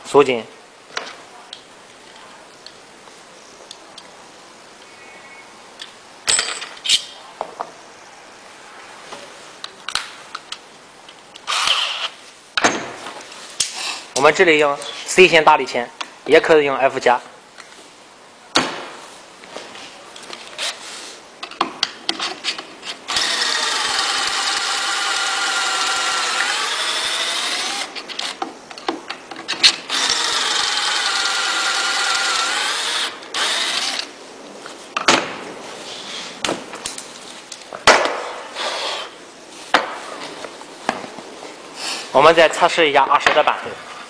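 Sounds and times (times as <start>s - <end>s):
electric drill running: 23.1s - 28.4s, 29.9s - 34.1s.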